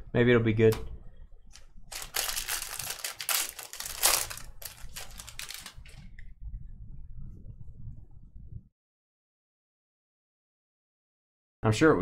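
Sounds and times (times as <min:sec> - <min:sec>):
packaging crinkling: 0:01.5 - 0:06.1.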